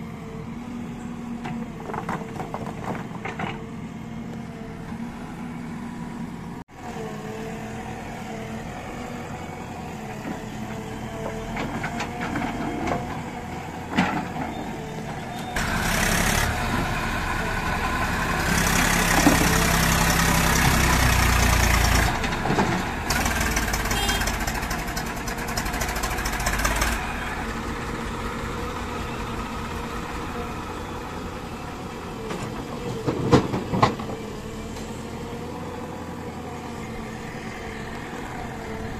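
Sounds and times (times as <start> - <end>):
diesel engines idling and revving: 0.0 - 38.9
rapid diesel clatter: 15.6 - 31.1.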